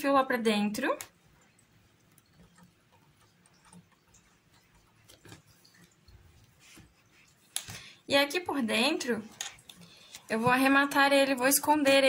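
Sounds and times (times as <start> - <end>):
faint ticks and rustles: 1.0 - 8.1.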